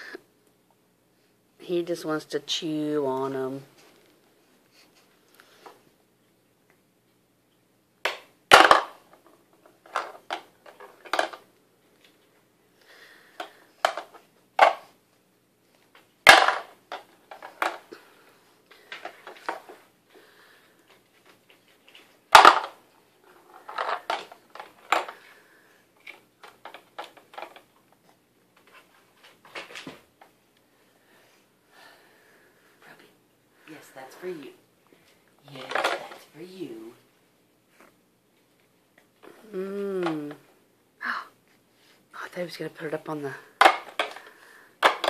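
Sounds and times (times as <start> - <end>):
plastic clicks and rattles: 26.0 - 27.7.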